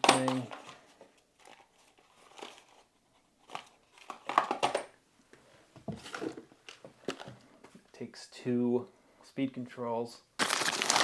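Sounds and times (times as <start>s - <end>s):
cardboard and plastic bags rustling: 5.9s - 7.7s, 10.4s - 11.0s.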